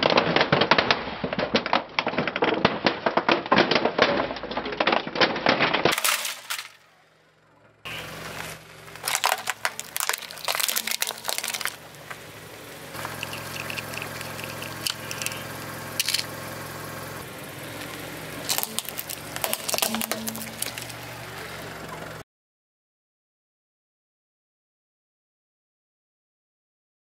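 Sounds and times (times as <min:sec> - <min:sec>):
sharp crack: 0:00.0 - 0:07.0, 0:07.9 - 0:21.4
tyre crushing plastic toys: 0:00.0 - 0:07.0, 0:07.9 - 0:12.2, 0:12.9 - 0:16.4, 0:17.8 - 0:21.3
car engine humming: 0:06.0 - 0:22.2.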